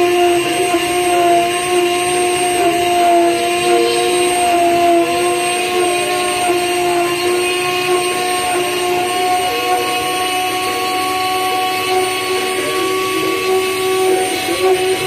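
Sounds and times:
bit cutting hiss: 0:00.0 - 0:15.0
rotary tool motor whine: 0:00.0 - 0:15.0.

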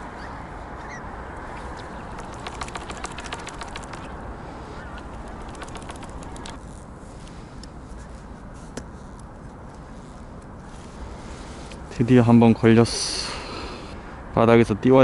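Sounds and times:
distant waterfowl calling: 0:00.0 - 0:06.6
steady outdoor hiss: 0:00.0 - 0:15.0.

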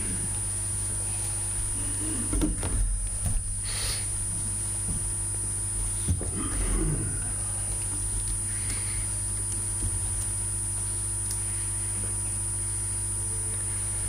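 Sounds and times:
electrical hum with high whine: 0:00.0 - 0:14.0
man's footsteps: 0:02.5 - 0:06.4.

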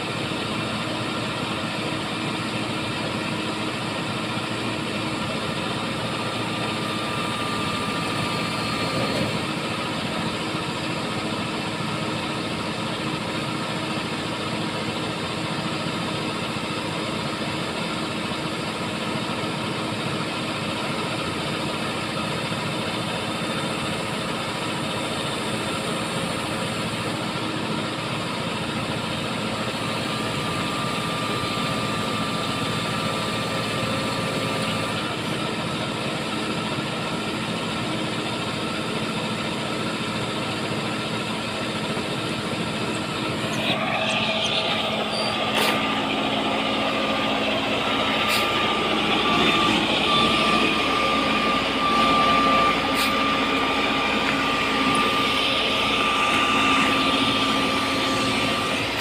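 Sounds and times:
diesel engine running: 0:00.0 - 0:59.0
faint high whine: 0:42.8 - 0:59.0.

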